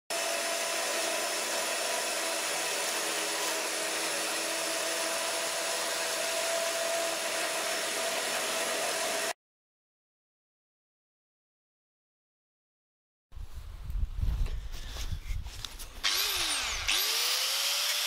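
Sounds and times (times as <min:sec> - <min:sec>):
electric chainsaw cutting a log: 0:00.1 - 0:09.4, 0:16.0 - 0:18.0
electric motor whine: 0:16.0 - 0:18.0.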